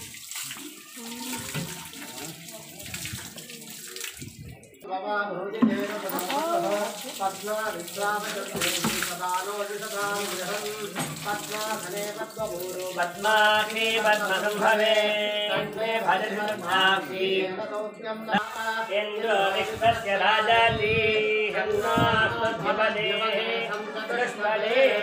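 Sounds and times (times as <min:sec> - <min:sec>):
water splashing on stone: 0:00.0 - 0:04.8, 0:05.6 - 0:16.7
voices chanting melodically: 0:13.2 - 0:25.0.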